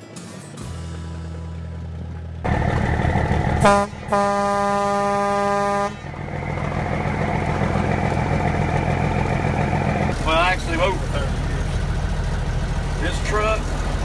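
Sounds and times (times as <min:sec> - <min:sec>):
truck engine running: 0:00.0 - 0:14.0
truck horn blast: 0:03.6 - 0:06.9.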